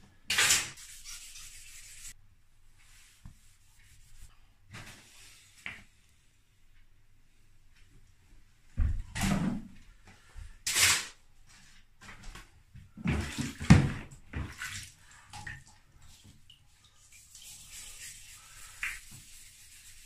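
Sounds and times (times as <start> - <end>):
water splashing in bathtub: 12.9 - 19.5.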